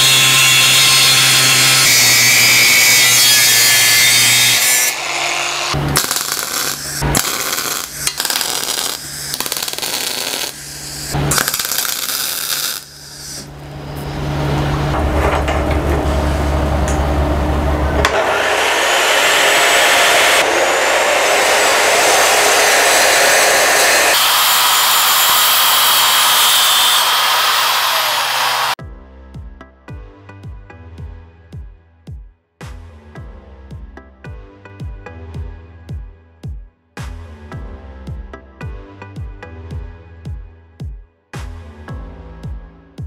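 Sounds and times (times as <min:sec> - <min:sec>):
chop saw grinding metal: 0:00.0 - 0:13.5, 0:18.0 - 0:28.8
welding arc crackling sizzle: 0:00.0 - 0:13.5, 0:20.3 - 0:28.8.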